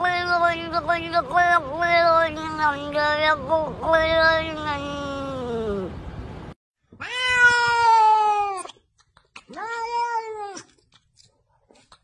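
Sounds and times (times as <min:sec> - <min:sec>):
cat meowing: 0:07.0 - 0:08.8, 0:09.4 - 0:10.8.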